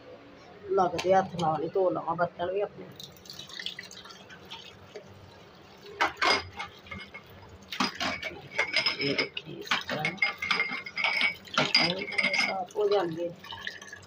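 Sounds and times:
running tap water: 0:02.9 - 0:14.0
drinking glasses clinking: 0:06.0 - 0:13.2.

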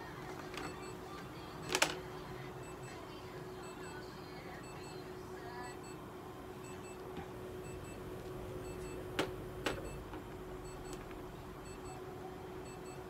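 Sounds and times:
steady electrical hum: 0:00.0 - 0:13.0
faint electronic beep: 0:10.6 - 0:11.0, 0:11.6 - 0:13.0.

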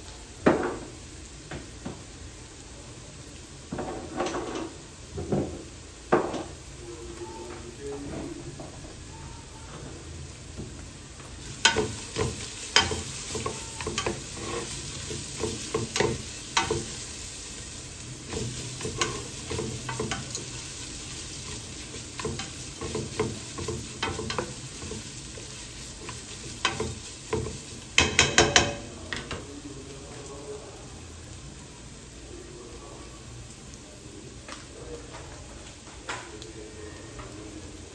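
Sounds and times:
food sizzling: 0:00.0 - 0:37.9
utensil scraping frying pan: 0:11.3 - 0:29.5.

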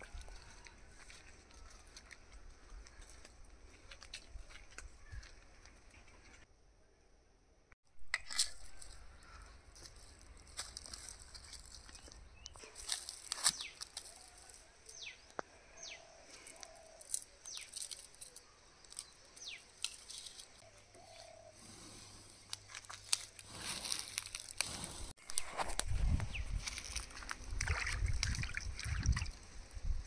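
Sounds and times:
twigs crackling and snapping: 0:08.1 - 0:15.5, 0:16.3 - 0:21.3, 0:22.3 - 0:28.9
bird chirping: 0:13.4 - 0:21.6.

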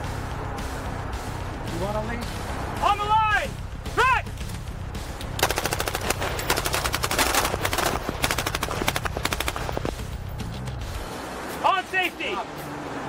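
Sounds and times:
automatic rifle fire: 0:05.4 - 0:09.9.

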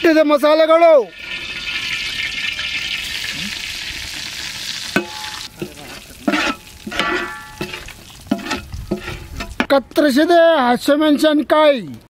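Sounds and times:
spices sizzling in hot oil: 0:00.0 - 0:09.8
metal ladle knocking and scraping pot: 0:05.0 - 0:09.8.

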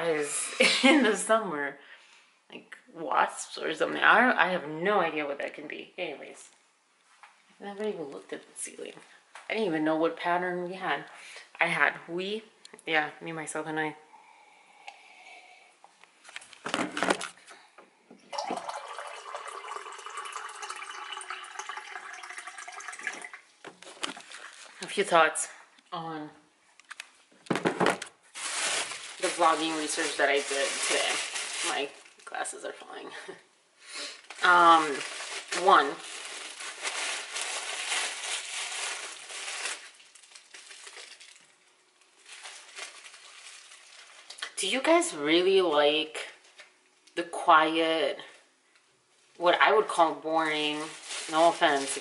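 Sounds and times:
water filling a glass: 0:18.3 - 0:23.5
plastic bag crinkling: 0:18.4 - 0:25.0, 0:27.9 - 0:32.9, 0:34.1 - 0:44.4, 0:50.2 - 0:52.0.

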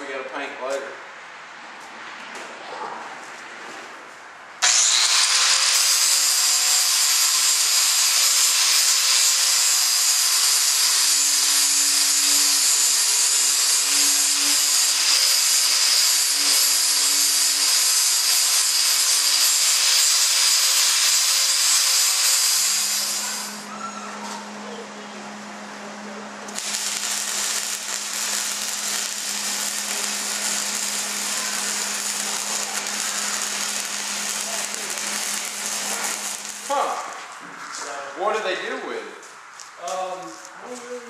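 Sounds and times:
angle grinder on steel: 0:04.6 - 0:23.7, 0:26.5 - 0:37.2.

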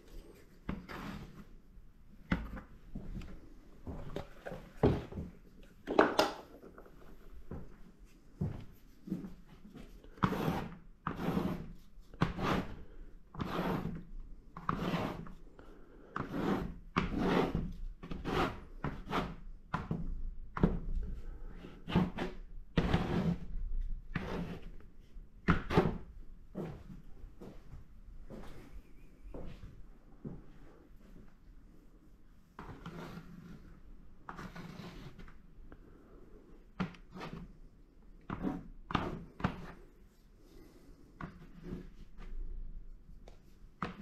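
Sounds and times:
painting knife scraping paint on paper: 0:10.0 - 0:19.5, 0:21.6 - 0:24.9, 0:32.6 - 0:35.3, 0:36.9 - 0:37.6, 0:38.2 - 0:40.0, 0:40.6 - 0:42.4.

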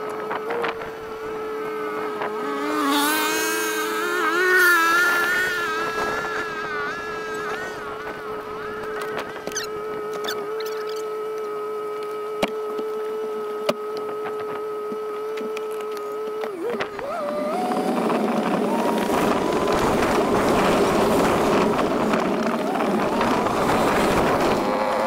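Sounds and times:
vehicle engine humming and revving: 0:00.0 - 0:25.0
wind noise: 0:04.9 - 0:11.0, 0:16.5 - 0:25.0.

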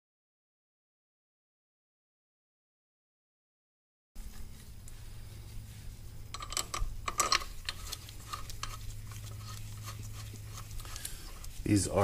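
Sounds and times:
steady low hum: 0:04.2 - 0:12.0
hand tool clicking and scraping: 0:06.3 - 0:11.6.

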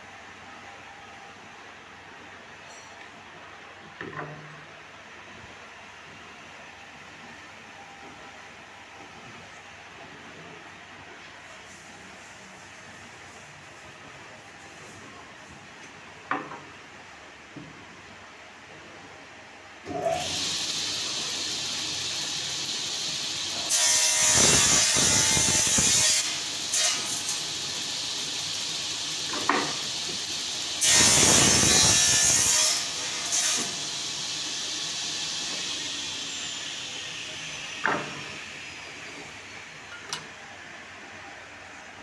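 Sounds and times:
table saw cutting wood: 0:19.9 - 0:39.6.

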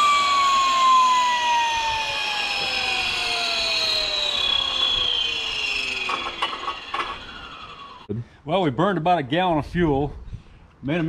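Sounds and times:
gas turbine spooling down: 0:00.0 - 0:08.2.

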